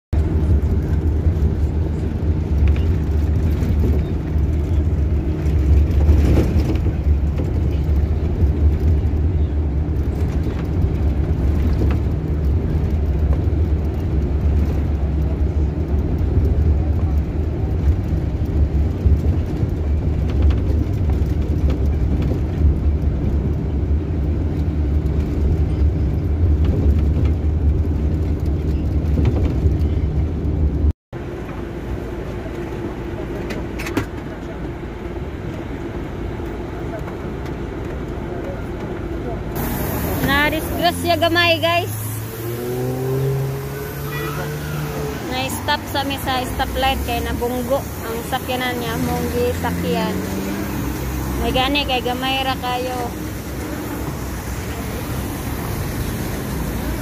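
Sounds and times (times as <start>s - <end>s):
bus engine rumble inside cabin: 0.1s - 57.0s.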